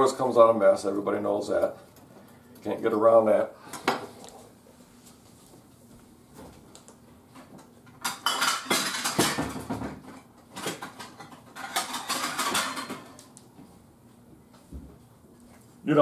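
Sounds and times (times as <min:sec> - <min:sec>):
dishes and plates clattering: 0:08.0 - 0:13.2.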